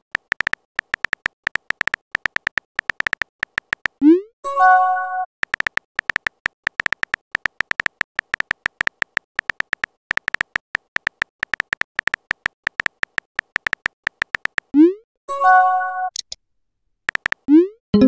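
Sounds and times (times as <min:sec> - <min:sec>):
phone keyboard tapping clicks: 0:00.2 - 0:04.0, 0:05.4 - 0:14.7, 0:17.1 - 0:18.0.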